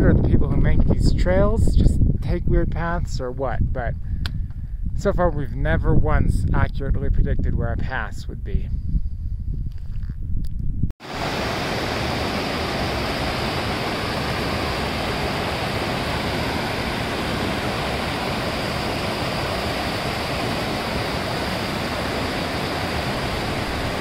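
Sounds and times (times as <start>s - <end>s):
river rushing over rocks: 11.0s - 24.0s.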